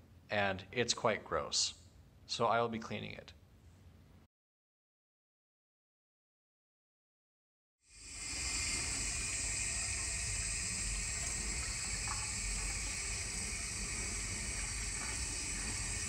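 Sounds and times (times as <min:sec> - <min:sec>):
faucet running water: 0:07.9 - 0:16.0.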